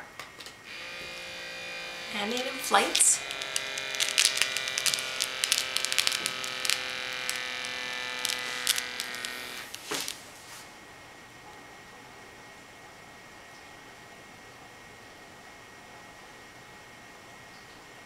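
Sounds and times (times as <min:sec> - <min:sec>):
air pump buzzing: 0:00.7 - 0:10.4.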